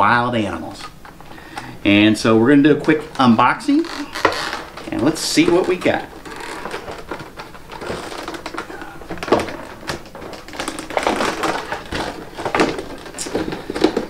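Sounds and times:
plastic packaging crackling: 0:00.7 - 0:14.0.

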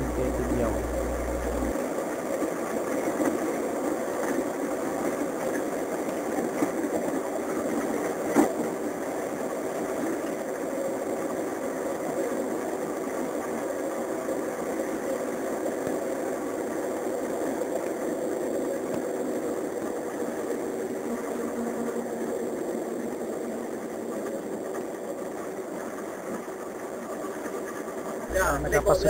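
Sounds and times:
vehicle engine: 0:00.0 - 0:01.7
road noise: 0:00.0 - 0:01.8.

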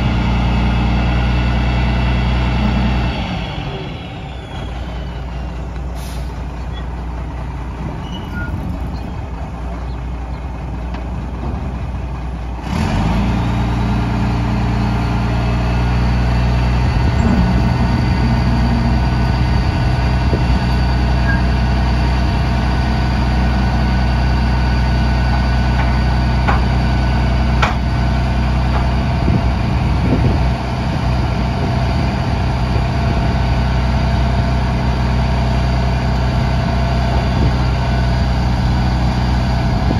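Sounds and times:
diesel truck engine running: 0:00.0 - 0:39.9
hoist whine: 0:16.2 - 0:29.6.

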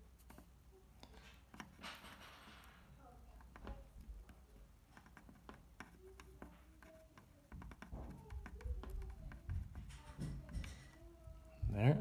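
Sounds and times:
soldering ticks and taps: 0:03.3 - 0:11.0.

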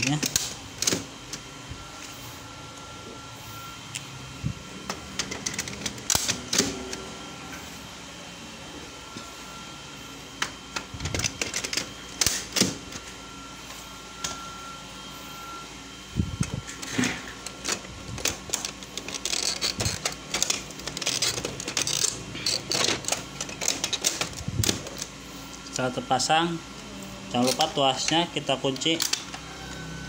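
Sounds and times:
plastic cartridges clicking and scraping: 0:10.7 - 0:13.0, 0:16.7 - 0:25.1.

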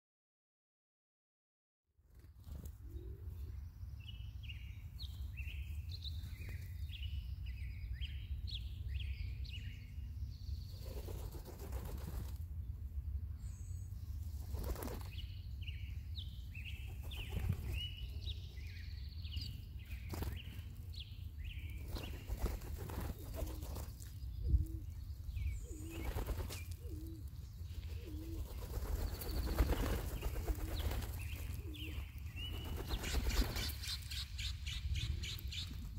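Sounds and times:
small birds chirping: 0:02.5 - 0:12.3, 0:13.3 - 0:35.9
pigeon wings flapping: 0:10.9 - 0:12.4, 0:14.4 - 0:15.1, 0:21.8 - 0:24.0, 0:26.0 - 0:26.7, 0:28.1 - 0:31.8, 0:32.6 - 0:33.8.

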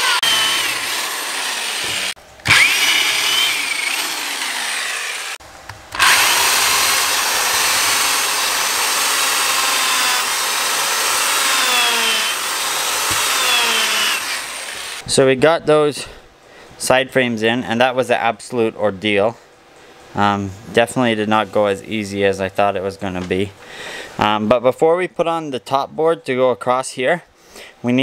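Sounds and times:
electric drill boring into wood: 0:00.0 - 0:15.0.

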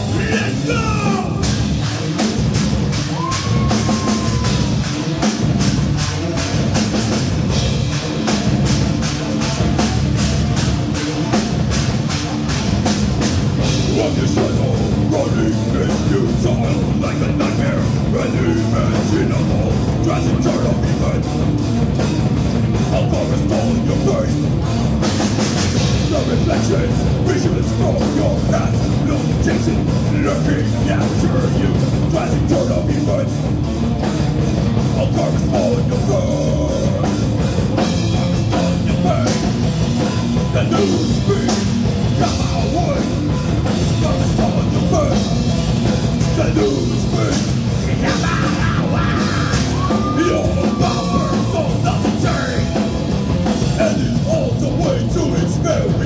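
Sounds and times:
heavy metal band playing: 0:00.0 - 0:56.0.

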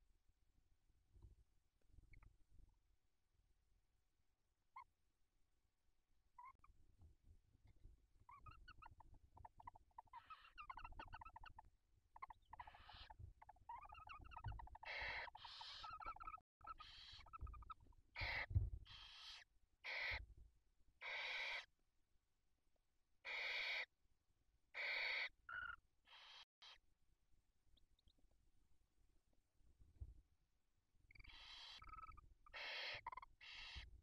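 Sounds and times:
owl twittering calls: 0:08.3 - 0:20.2, 0:21.0 - 0:21.7, 0:23.2 - 0:23.9, 0:24.7 - 0:26.8, 0:31.1 - 0:33.9
owl hissing screeches: 0:14.9 - 0:16.0, 0:16.7 - 0:17.3, 0:18.2 - 0:20.2, 0:21.0 - 0:21.7, 0:23.3 - 0:23.9, 0:24.8 - 0:25.3, 0:32.5 - 0:33.9.

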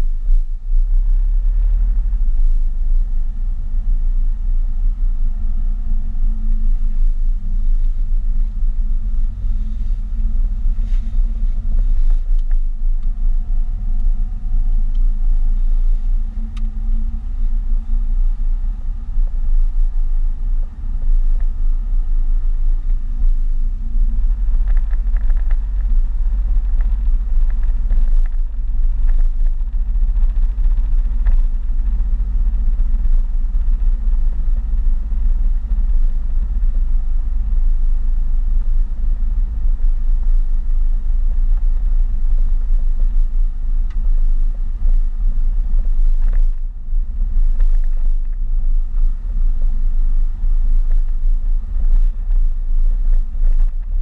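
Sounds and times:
car engine and tyres on wet road: 0:00.0 - 0:54.0
faint rising whine: 0:00.0 - 0:54.0
light ticks: 0:16.3 - 0:17.2.

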